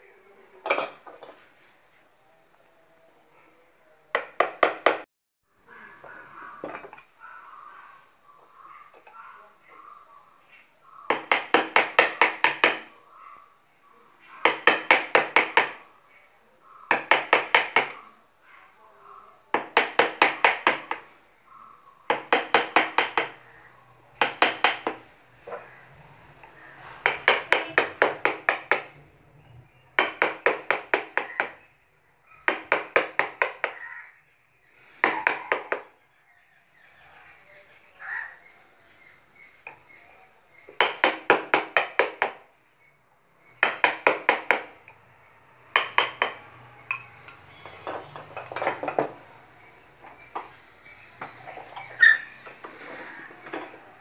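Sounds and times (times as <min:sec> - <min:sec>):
mallet tapping chisel into wood: 0:22.1 - 0:23.4, 0:24.2 - 0:25.0, 0:27.0 - 0:28.9, 0:43.6 - 0:44.8, 0:45.7 - 0:47.8.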